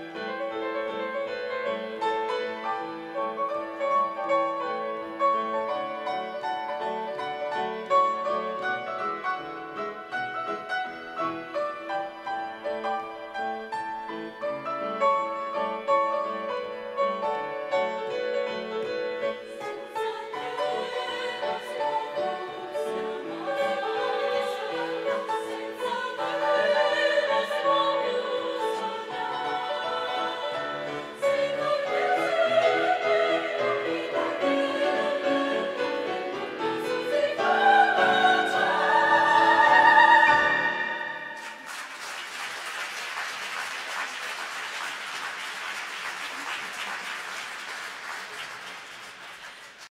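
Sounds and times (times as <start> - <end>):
women's choir singing: 19.1 - 41.6
audience applause: 41.4 - 49.9.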